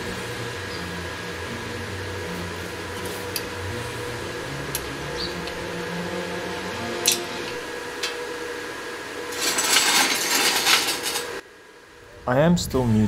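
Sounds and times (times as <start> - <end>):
fan-like machine hum: 0.0 - 13.0
steel pieces clicking: 9.3 - 11.4.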